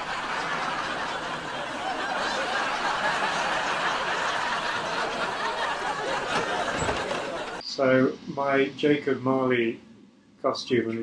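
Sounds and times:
audience laughing: 0.0 - 7.6.

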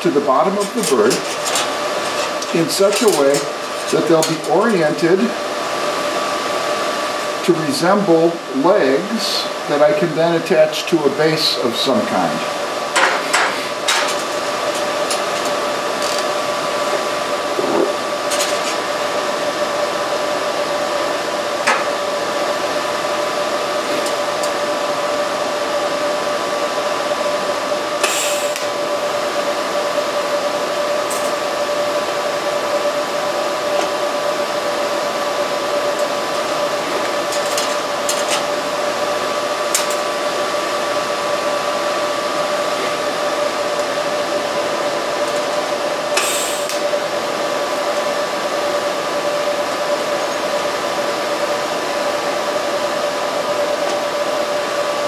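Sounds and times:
welder hum and whine: 0.0 - 55.0
welding arc hiss: 27.6 - 29.4, 32.8 - 48.4.

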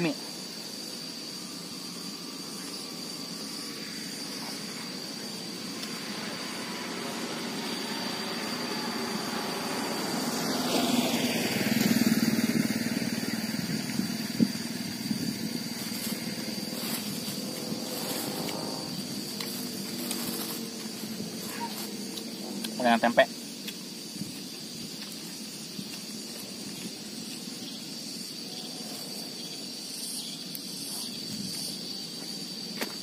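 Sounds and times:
high insect drone: 0.0 - 33.0
vehicle engine passing: 5.0 - 22.9.

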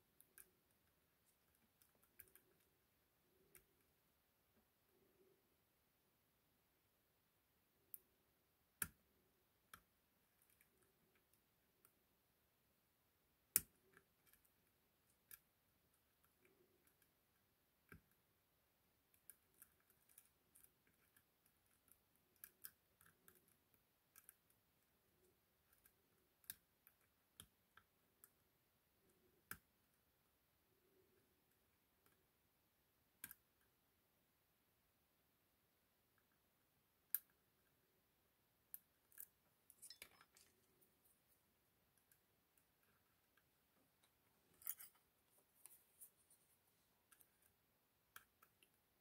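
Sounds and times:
lock pick metallic clicks: 44.6 - 45.0.

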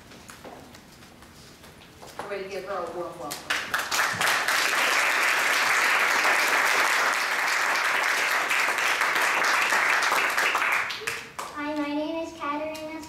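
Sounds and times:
audience applauding: 3.5 - 11.5.

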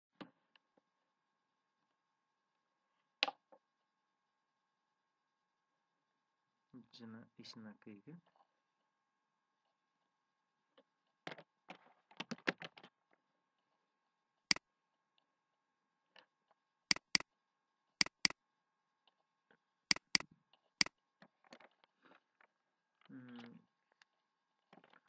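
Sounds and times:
computer mouse clicking: 16.9 - 17.2, 18.0 - 18.4, 19.9 - 20.9.

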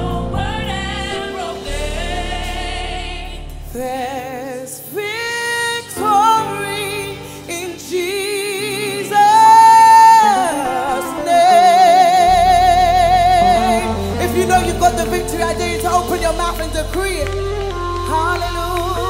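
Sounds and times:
backing music with bass: 0.0 - 4.5, 9.3 - 19.0
woman singing with vibrato: 0.0 - 19.0.

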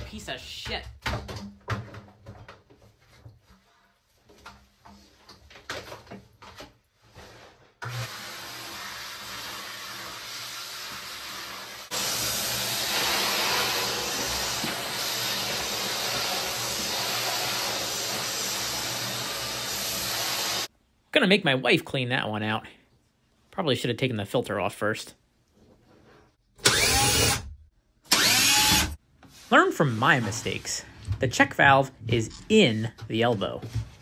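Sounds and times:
shop vacuum running: 7.8 - 20.7.

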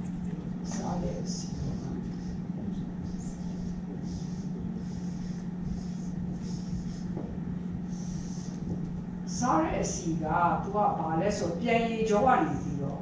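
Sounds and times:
low room hum: 0.0 - 13.0
marker pen scratching on paper: 3.1 - 8.9.

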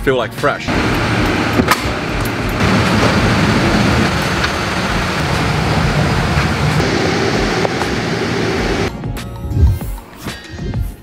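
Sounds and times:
truck engine and lift drone: 0.7 - 8.9.

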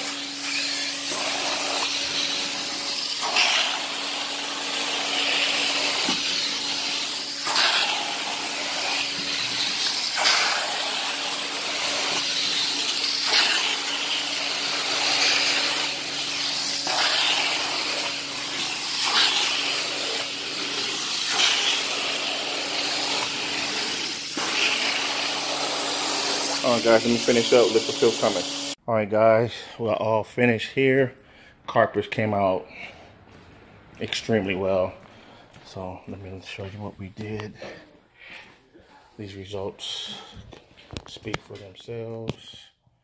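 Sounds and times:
carpet extraction wand suction hiss: 0.0 - 28.8.

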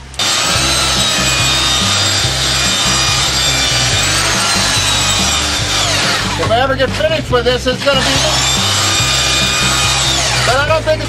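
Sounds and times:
power tool cutting wood: 0.0 - 7.1, 7.7 - 11.0.

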